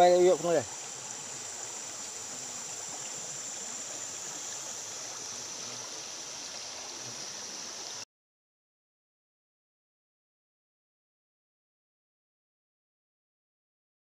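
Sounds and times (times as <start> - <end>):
creek water flowing over stones: 0.0 - 8.1.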